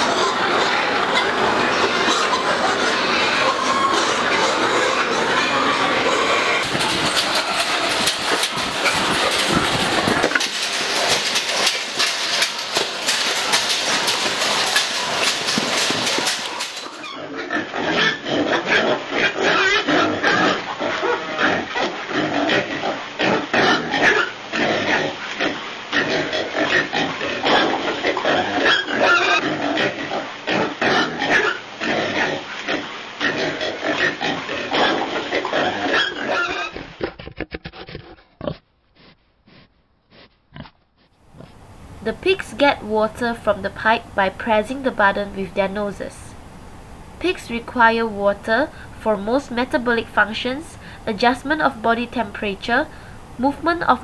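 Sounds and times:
pigs squealing and grunting: 0:00.0 - 0:38.6.

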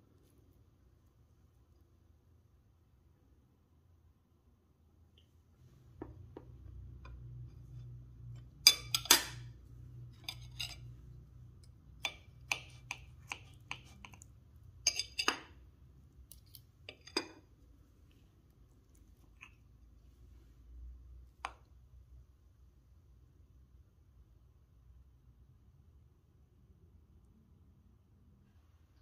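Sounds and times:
faint low hum: 0:00.0 - 0:29.0
cutlery and dishes clinking: 0:08.4 - 0:09.5, 0:10.1 - 0:11.0, 0:14.8 - 0:15.6, 0:16.4 - 0:17.5.

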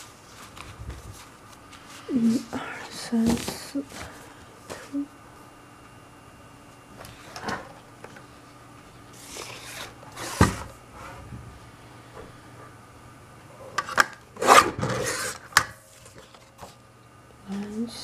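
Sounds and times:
paper rustling and sliding: 0:00.0 - 0:02.0, 0:09.1 - 0:11.2.

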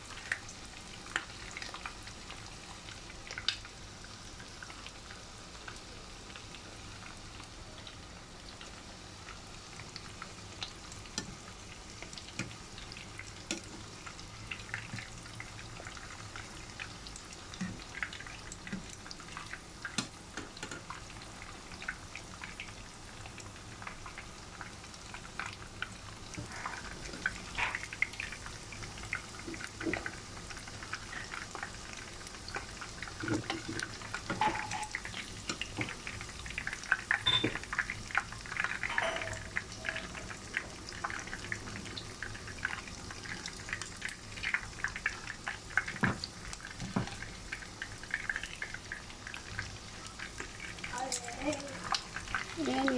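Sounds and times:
deep-frying sizzle with pops: 0:00.0 - 0:52.9.

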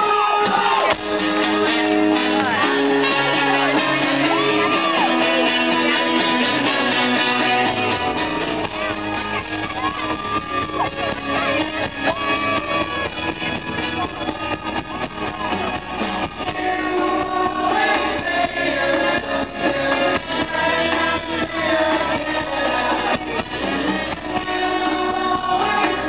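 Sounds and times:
drums: 0:00.0 - 0:26.0
acoustic guitar strumming: 0:00.9 - 0:14.9
person singing long notes: 0:16.4 - 0:26.0.

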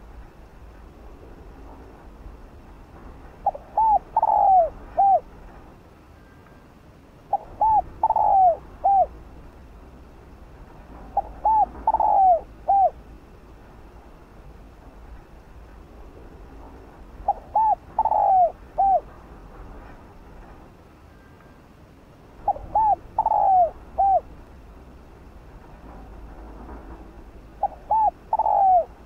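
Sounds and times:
dove cooing: 0:03.4 - 0:05.3, 0:07.3 - 0:09.2, 0:11.1 - 0:13.0, 0:17.2 - 0:19.1, 0:22.4 - 0:24.4, 0:27.5 - 0:29.0.

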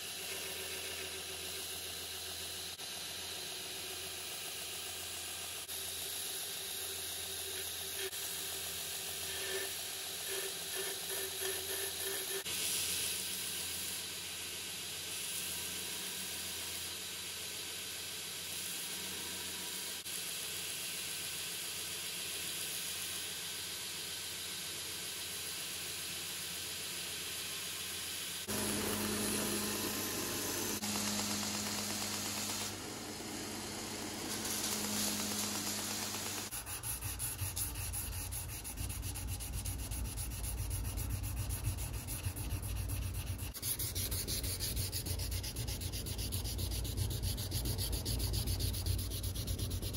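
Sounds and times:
belt grinder sanding: 0:09.1 - 0:12.5, 0:28.5 - 0:49.9
grinder motor hum: 0:28.5 - 0:49.9.

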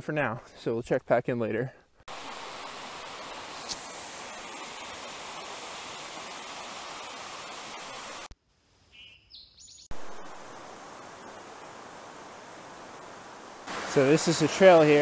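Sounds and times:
stream rushing over rocks: 0:02.1 - 0:08.3, 0:09.9 - 0:15.0
bird chirps: 0:08.9 - 0:09.9.

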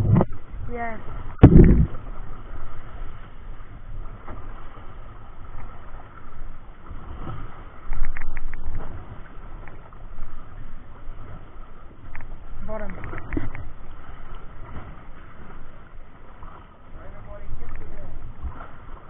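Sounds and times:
wind on microphone: 0:00.0 - 0:05.1
sea washing against hull: 0:00.0 - 0:19.0.

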